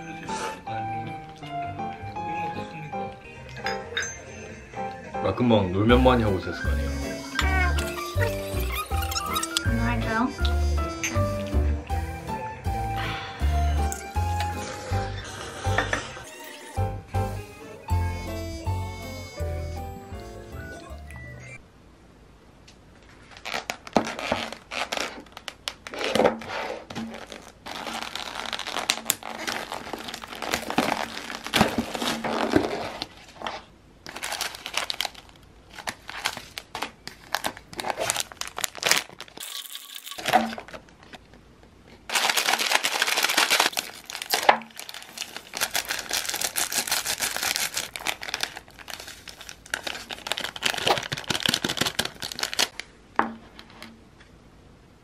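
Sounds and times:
plastic packaging crinkling and tearing: 7.1 - 10.2, 23.0 - 41.2, 41.9 - 52.9.

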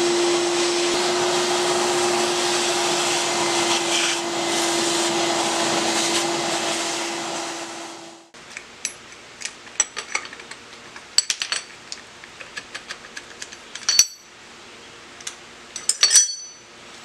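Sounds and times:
steel clamps clinking and clanking: 8.8 - 14.3, 15.2 - 16.7
loud ringing metal clanks: 13.8 - 14.3, 15.8 - 16.7.

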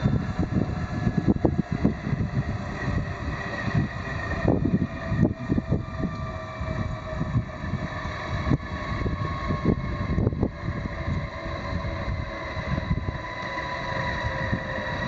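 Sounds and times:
helicopter turbine whine: 0.0 - 15.0
low rotor rumble: 0.0 - 15.0.

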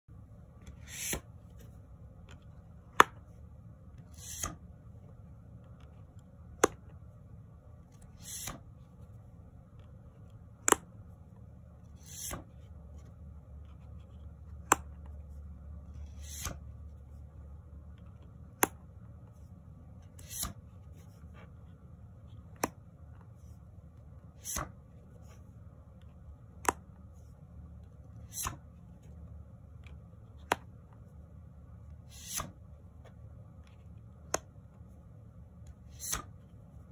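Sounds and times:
low steady hum: 0.1 - 36.9
cards swishing: 0.7 - 1.8, 4.0 - 4.6, 8.0 - 8.6, 11.9 - 12.6, 16.0 - 16.6, 20.2 - 21.2, 24.3 - 25.4, 28.2 - 28.7, 32.0 - 32.6, 35.9 - 36.4
card paper snap: 35.9 - 36.4.

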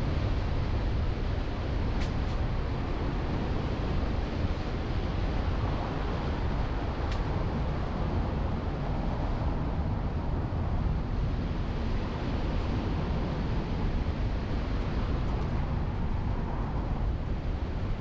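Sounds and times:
car road and wind noise: 0.0 - 18.0.

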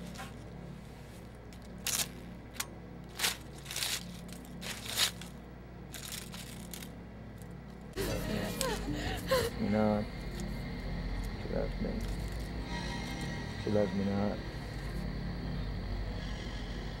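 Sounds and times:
low steady hum: 0.0 - 17.0
dried flowers crunching: 3.0 - 7.5.

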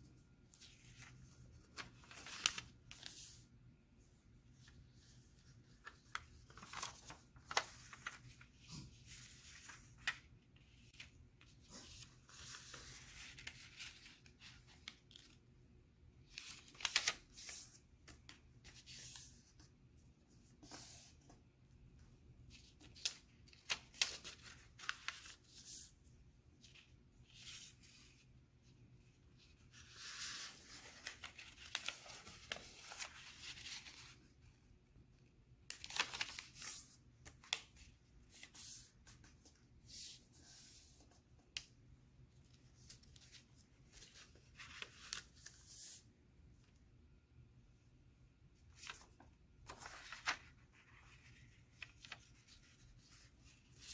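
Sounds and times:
paper crackling and rustling: 0.5 - 3.4, 4.6 - 15.4, 16.3 - 19.4, 22.6 - 25.9, 29.6 - 34.3, 35.6 - 41.7, 42.5 - 46.0, 48.6 - 53.9.

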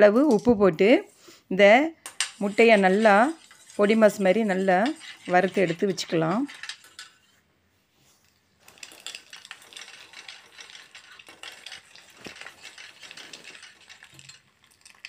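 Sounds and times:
eggs sizzling in oil: 2.1 - 6.4
metal spatula scraping a pan: 2.1 - 7.4, 8.7 - 15.0.

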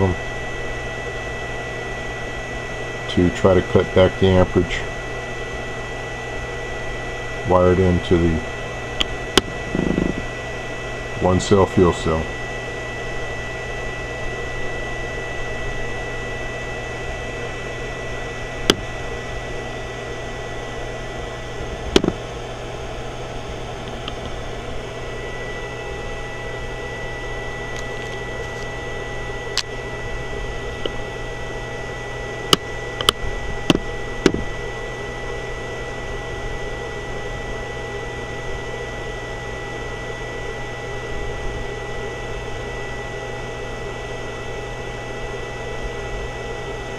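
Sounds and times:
electrical hum: 0.0 - 46.9
high thin whine: 9.3 - 10.5.

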